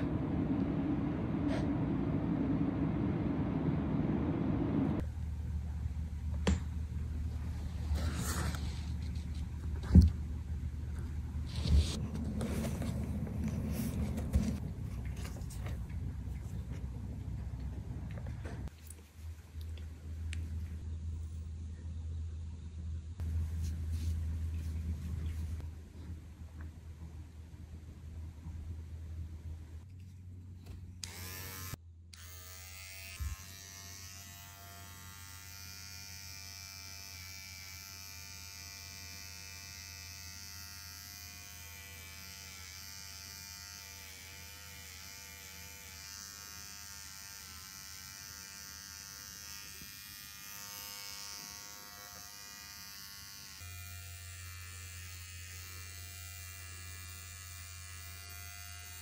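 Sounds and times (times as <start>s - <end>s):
electric pet clipper buzzing: 31.0s - 59.0s.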